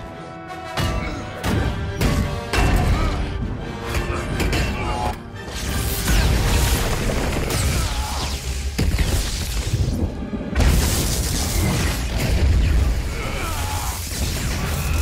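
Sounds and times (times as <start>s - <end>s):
dramatic orchestral score: 0.0s - 15.0s
crackling lightning strikes: 6.1s - 15.0s.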